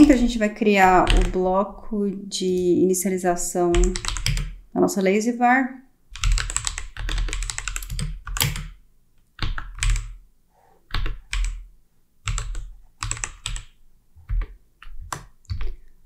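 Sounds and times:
typing on a computer keyboard: 0.9s - 1.4s, 3.7s - 4.6s, 6.1s - 8.8s, 9.4s - 10.2s, 10.9s - 11.6s, 12.2s - 15.8s.

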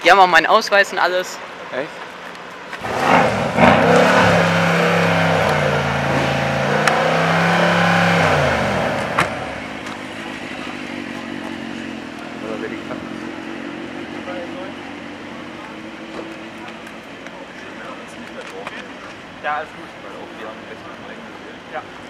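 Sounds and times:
exhaust crack: 2.7s - 14.3s
car engine revving: 2.8s - 17.1s.

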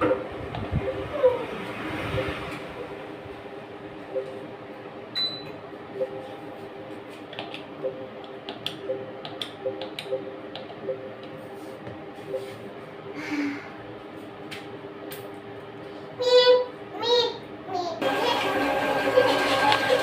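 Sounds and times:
steady low hum: 0.0s - 18.0s
keypad key presses: 7.3s - 11.4s.

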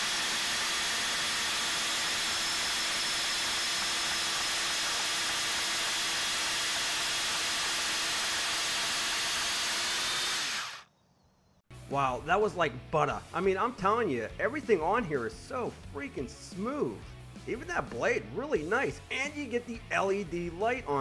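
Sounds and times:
band saw cutting metal: 0.0s - 10.9s.

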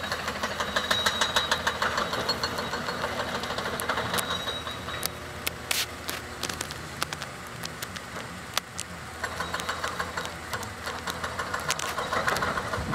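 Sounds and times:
machinery clanks and knocks: 0.0s - 5.2s, 9.2s - 12.9s
excavator diesel engine running: 0.0s - 12.9s.

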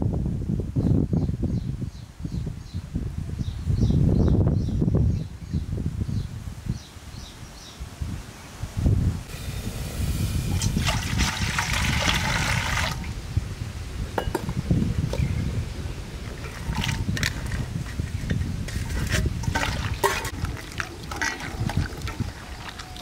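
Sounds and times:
water splashing in a steel bowl: 10.5s - 13.1s, 16.2s - 17.7s, 18.8s - 23.0s
onions dropping into water: 19.4s - 23.0s.

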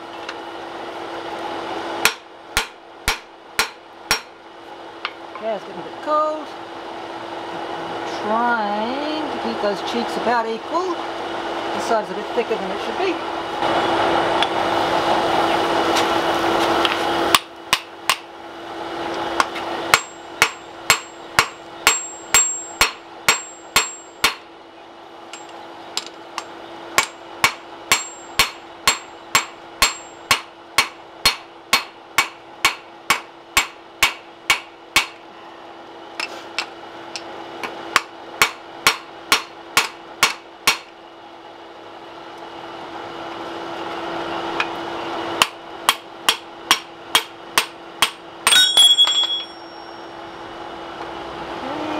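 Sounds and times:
hammer striking anvil: 2.0s - 4.3s, 19.9s - 24.4s, 26.4s - 35.2s, 38.0s - 40.9s, 45.4s - 50.1s.

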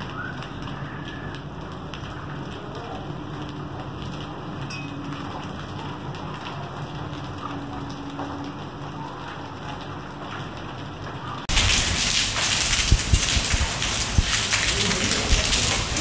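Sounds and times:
rain and hail on concrete: 0.0s - 16.0s.

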